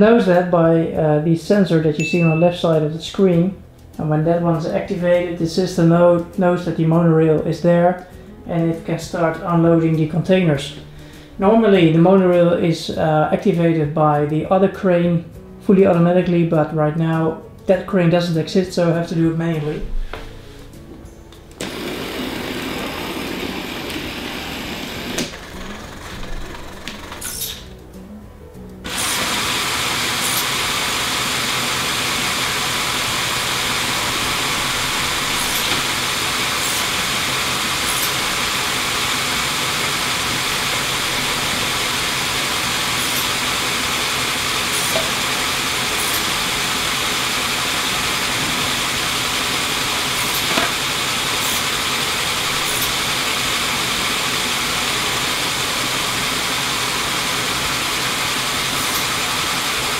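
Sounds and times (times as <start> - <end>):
toy crane motor running: 21.6 - 27.7, 28.8 - 59.9.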